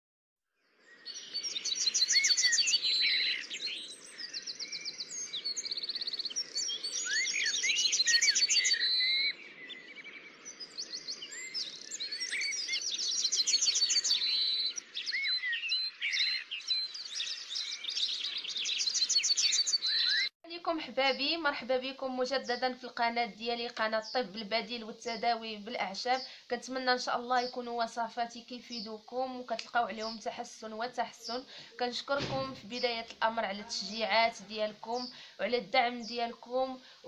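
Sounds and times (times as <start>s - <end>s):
songbirds chirping and trilling: 0.6s - 37.0s
faint background hiss: 20.5s - 37.0s.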